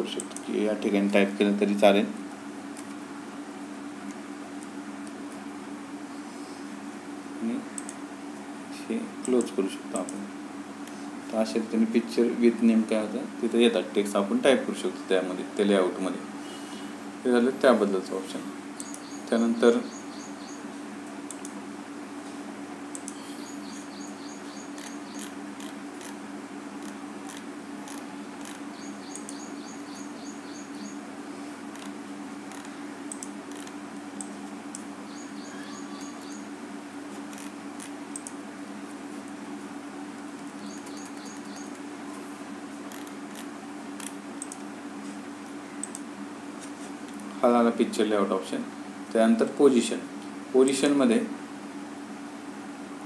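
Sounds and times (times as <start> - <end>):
mouse scroll-wheel ticks: 26.8 - 28.6, 32.5 - 33.7, 37.3 - 38.3, 42.9 - 44.6.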